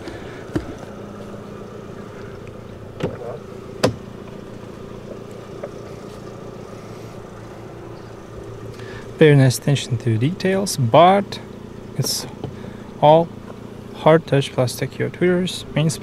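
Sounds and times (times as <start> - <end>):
car engine idling: 0.0 - 16.0
car door handle clicks: 3.0 - 4.0.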